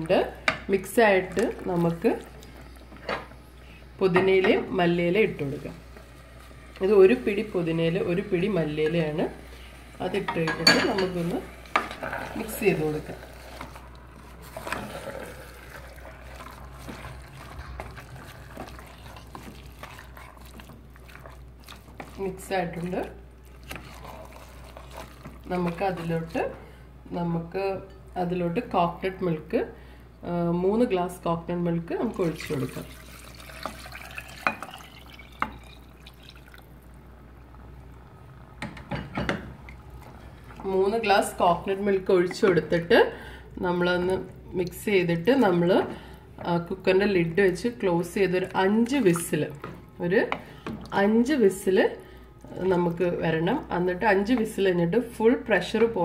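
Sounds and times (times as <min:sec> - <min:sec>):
food sizzling softly: 0:04.7 - 0:26.9, 0:32.0 - 0:55.6
liquid pouring and splashing: 0:11.6 - 0:26.1, 0:32.1 - 0:36.9.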